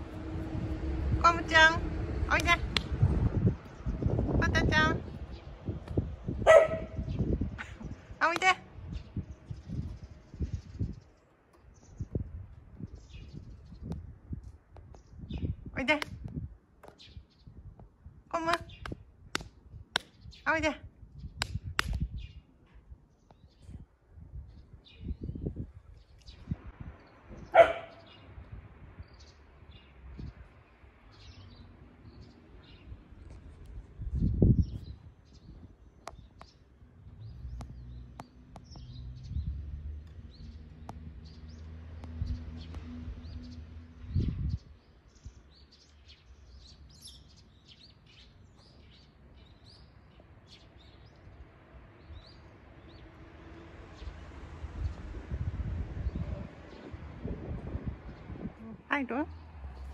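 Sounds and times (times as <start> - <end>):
small birds chirping: 1.2 - 51.4
birds chirping: 3.6 - 12.2, 24.5 - 33.5
dog barking: 6.4 - 7.1, 27.5 - 28.1.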